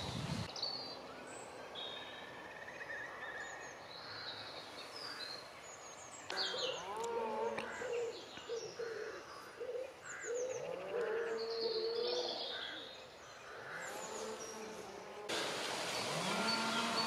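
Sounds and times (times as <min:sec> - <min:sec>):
waterbirds calling: 0:03.4 - 0:17.0.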